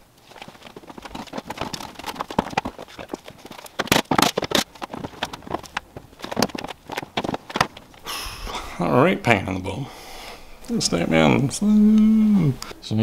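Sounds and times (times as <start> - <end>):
plastic cover flexing and knocking: 0.0 - 8.1.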